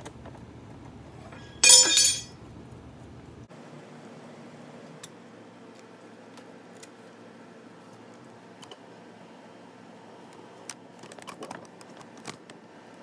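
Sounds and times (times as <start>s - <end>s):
steel tool striking metal bracket: 1.4s - 2.3s.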